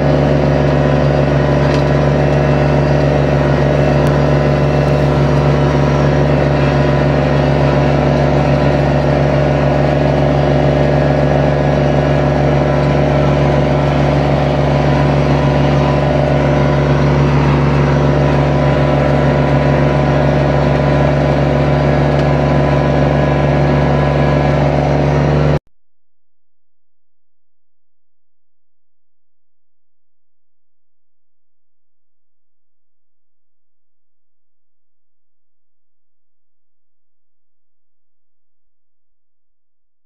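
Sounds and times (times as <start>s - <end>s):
flail mower cutting grass: 0.0s - 25.6s
tractor diesel engine under load: 0.0s - 25.6s.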